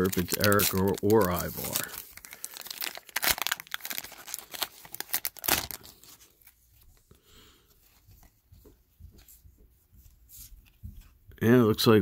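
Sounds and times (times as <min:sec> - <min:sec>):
wrapper tearing and crinkling: 0:00.0 - 0:06.6
cards rustling: 0:00.0 - 0:07.1.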